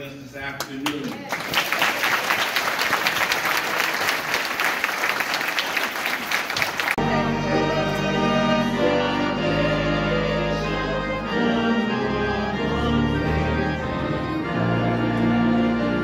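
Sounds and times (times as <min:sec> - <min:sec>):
organ chords: 0:06.9 - 0:16.0.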